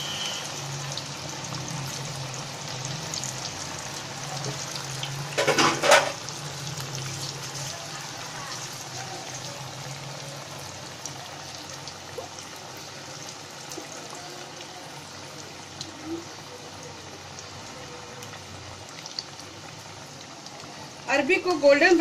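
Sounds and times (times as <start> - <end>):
food deep-frying in oil: 0.0 - 22.0
oil crackles and pops: 0.9 - 9.9, 10.8 - 21.0.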